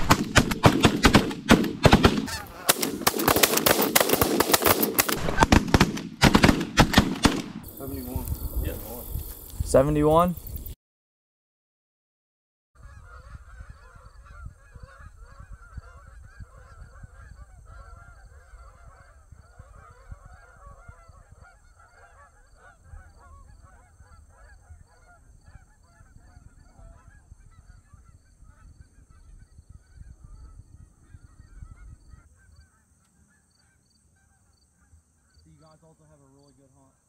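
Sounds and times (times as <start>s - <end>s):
geese honking: 1.8s - 5.1s, 12.8s - 36.1s.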